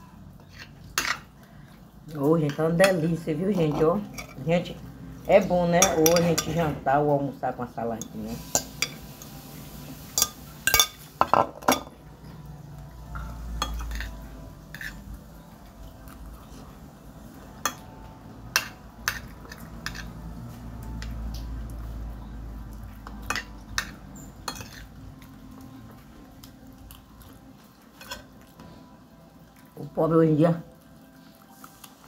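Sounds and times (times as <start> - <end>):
spoon clinking on glass dishes: 0.5 - 1.3, 5.7 - 6.7, 8.0 - 9.4, 10.1 - 12.0, 13.0 - 15.0, 17.6 - 20.1, 23.0 - 25.0
spoon scraping plate: 13.2 - 15.0, 23.3 - 24.9.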